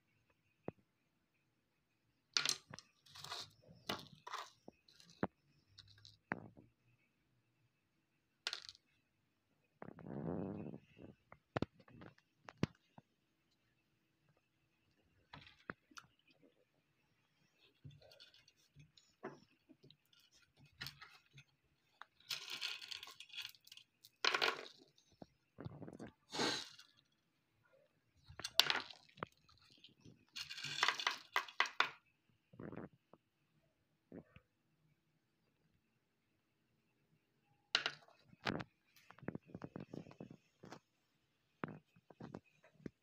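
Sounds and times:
glass marbles clinking: 2.4s - 6.3s, 22.0s - 25.0s, 28.4s - 32.0s.

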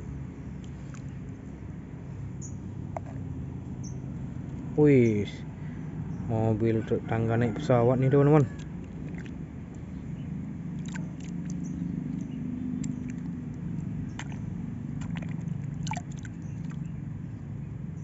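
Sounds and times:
splashes and squelches in mud: 8.0s - 17.0s.

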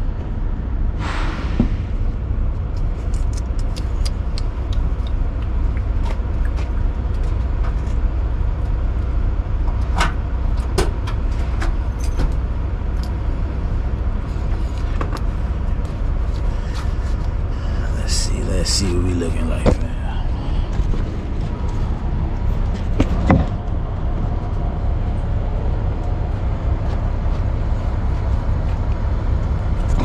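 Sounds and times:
diesel truck engine idling: 1.7s - 30.0s.

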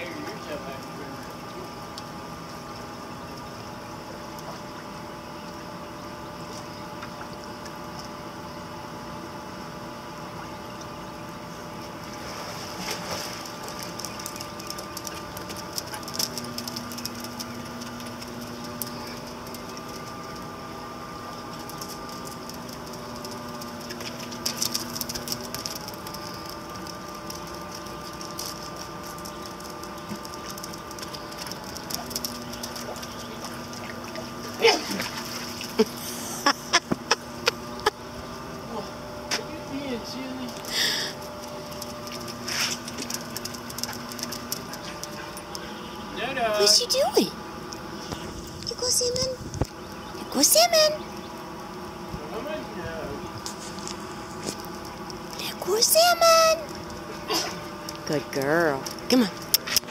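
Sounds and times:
pool pump motor humming: 0.0s - 59.9s
clicks and splashy crackles: 12.0s - 20.6s, 21.2s - 35.9s, 40.4s - 45.7s, 53.4s - 55.5s, 56.2s - 59.9s.

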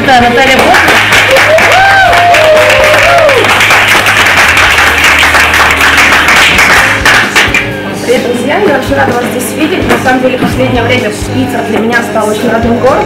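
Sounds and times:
audience applauding: 0.5s - 7.7s.

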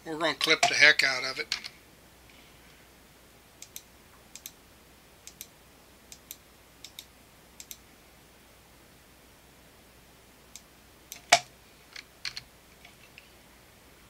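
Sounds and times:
low steady hum: 0.0s - 14.0s
computer mouse clicks: 3.6s - 4.6s, 5.2s - 5.5s, 6.1s - 7.8s, 10.5s - 11.5s.

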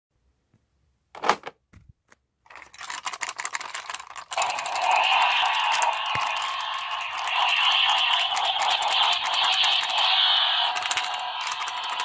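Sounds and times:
plastic toy car rattling and clicking: 2.5s - 10.0s, 10.7s - 12.0s
toy car motor whirring: 2.6s - 12.0s.

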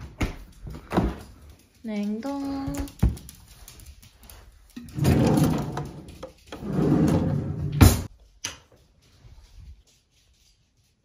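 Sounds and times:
cutlery drawer sliding on runners: 5.0s - 6.0s, 6.6s - 8.1s.

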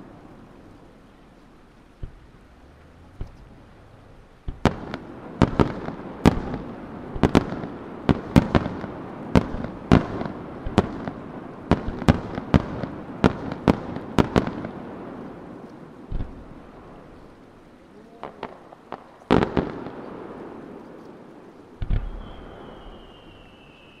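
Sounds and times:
firework shells bursting: 4.4s - 14.7s.

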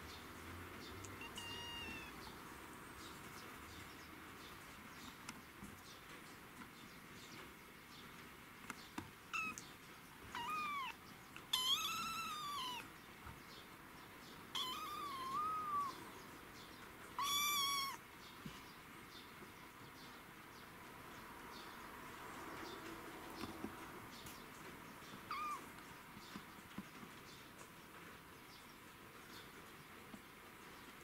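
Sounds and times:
kitten meowing: 1.1s - 2.3s, 9.3s - 9.7s, 10.3s - 12.9s, 14.5s - 16.0s, 17.2s - 18.0s, 25.3s - 25.7s.

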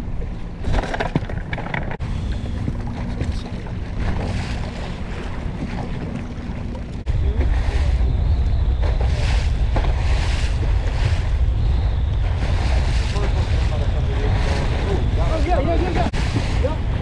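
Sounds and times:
outboard motor running: 0.0s - 17.0s
water washing along hull: 0.0s - 17.0s
wind on microphone: 0.0s - 17.0s.

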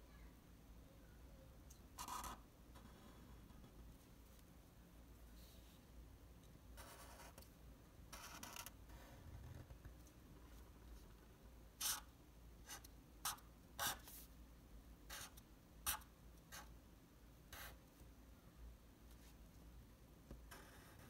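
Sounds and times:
marker scratching on paper: 2.0s - 3.8s, 6.8s - 7.5s, 8.1s - 8.8s, 11.8s - 14.3s, 15.1s - 16.7s, 17.5s - 17.8s, 20.5s - 21.0s.

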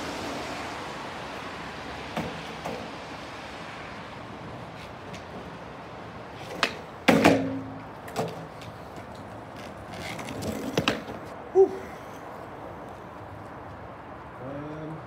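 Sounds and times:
skateboard wheels rolling on paving: 0.0s - 14.4s
skateboard clattering down: 6.4s - 8.6s, 9.9s - 11.2s
skateboard click: 6.4s - 11.3s.

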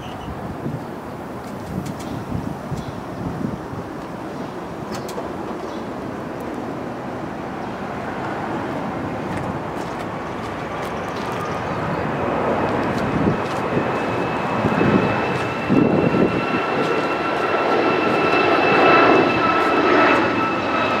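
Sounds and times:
wind gusts on microphone: 0.0s - 21.0s
steady engine noise: 3.4s - 21.0s
high even whine: 8.6s - 21.0s.

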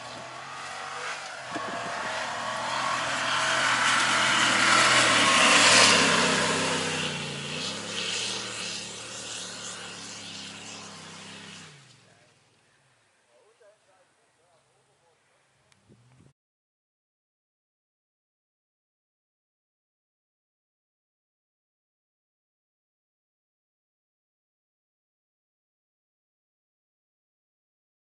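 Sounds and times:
truck engine working hard: 0.0s - 12.2s.

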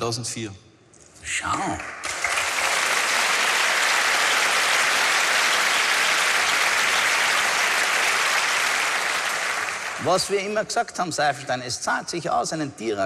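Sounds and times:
audience applauding: 1.7s - 10.6s.

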